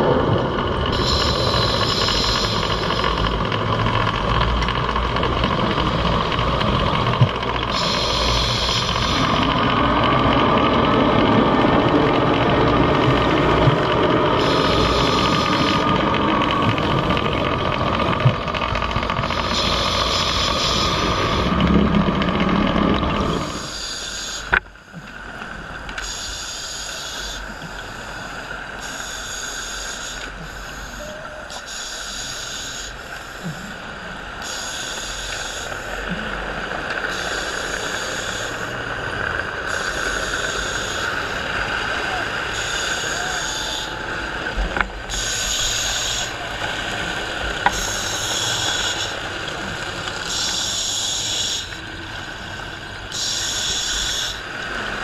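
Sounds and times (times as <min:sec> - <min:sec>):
steady low rumble: 0:00.0 - 0:26.0
scuba regulator breathing hiss: 0:01.0 - 0:03.0, 0:07.7 - 0:09.3, 0:19.5 - 0:21.5, 0:26.0 - 0:33.6, 0:47.7 - 0:49.2, 0:53.1 - 0:54.4.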